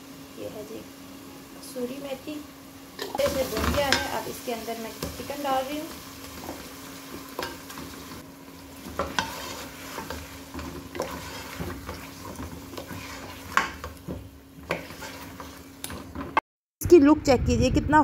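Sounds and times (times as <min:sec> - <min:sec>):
chicken sizzling in pot: 0:00.0 - 0:16.4
wooden spoon scraping a pot: 0:06.2 - 0:16.4.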